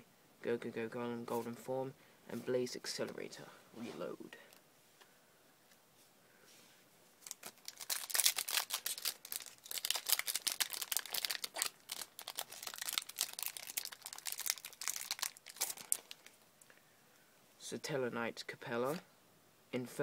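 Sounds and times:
foil wrapper crinkling and tearing: 7.2 - 16.4.

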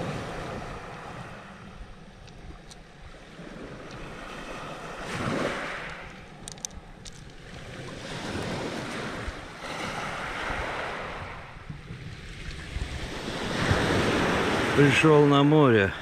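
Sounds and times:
wind noise on microphone: 0.0 - 14.9
waves washing onto pebble beach: 3.2 - 11.5, 12.2 - 16.0.

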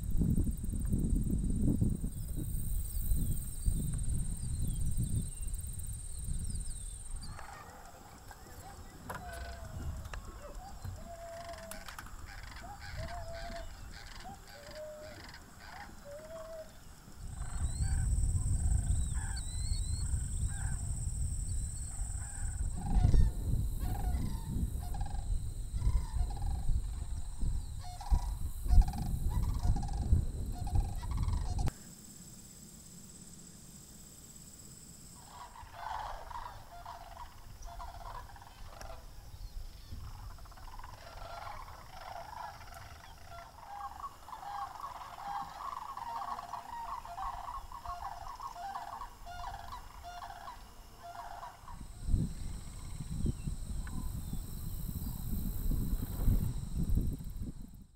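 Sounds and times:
cranes calling: 6.6 - 20.9, 21.8 - 31.7, 35.2 - 54.4.

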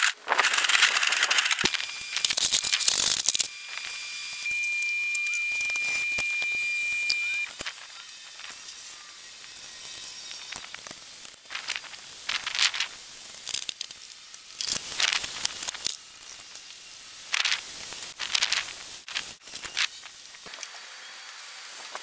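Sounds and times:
sharp clicks: 0.0 - 3.5.

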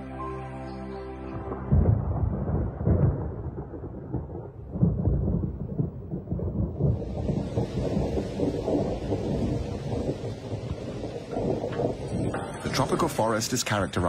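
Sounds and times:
thunder rumbling: 1.4 - 14.0
rain hiss: 6.5 - 14.0.

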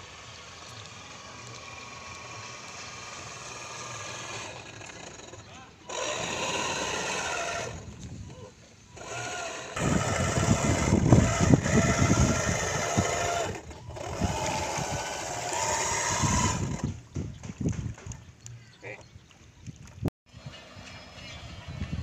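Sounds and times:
small motor whining: 0.0 - 17.0.

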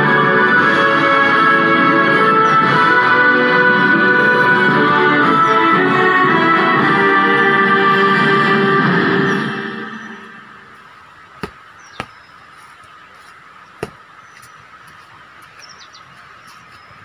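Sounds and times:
music: 0.0 - 10.7
sharp knocks: 11.4 - 12.2.

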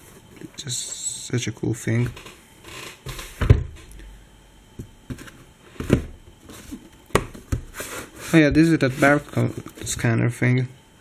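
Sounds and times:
cardboard rubbing: 5.1 - 10.1.

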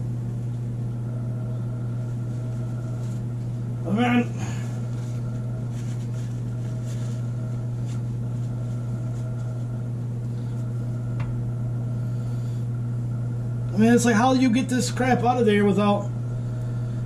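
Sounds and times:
low electrical hum: 0.0 - 17.0
paper wrapper crinkling: 2.3 - 3.5, 4.5 - 9.7.

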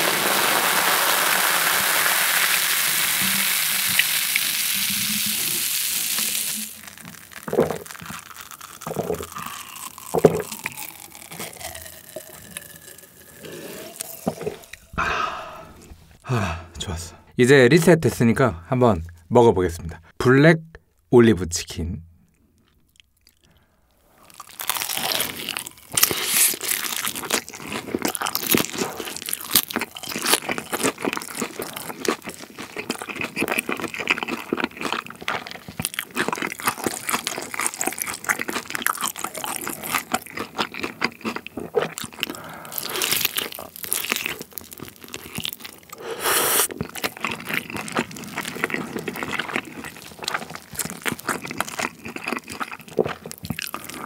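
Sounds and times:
bites cracking crispy coating: 0.1 - 15.0, 24.2 - 54.0
wet chewing and crunching: 5.3 - 16.2, 22.3 - 54.0.

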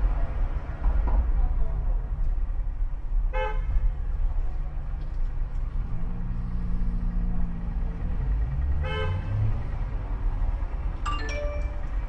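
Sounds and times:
bus engine and road rumble: 0.0 - 12.0
vehicle horn toot: 8.8 - 9.3.

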